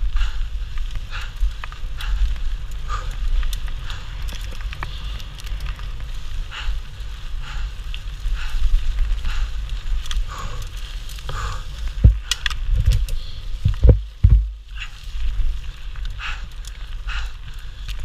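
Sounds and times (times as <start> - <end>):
bike rattling: 0.0 - 18.0
bike tyres crackling on gravel: 0.0 - 18.0
steady low rumble: 0.0 - 18.0
heavy thuds over bumps: 11.2 - 15.6.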